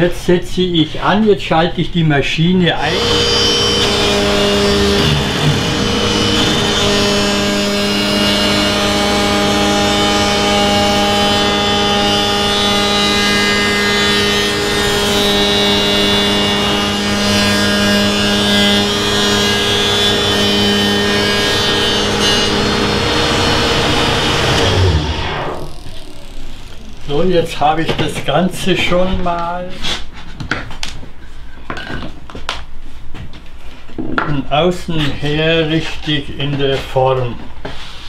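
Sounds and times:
cutter shaping wooden board: 2.8s - 28.3s
wood shaper machine whine: 2.8s - 28.5s.

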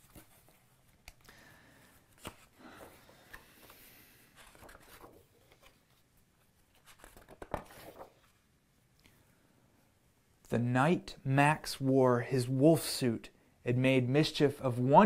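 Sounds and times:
book pages turning: 0.0s - 1.2s, 2.1s - 8.4s.

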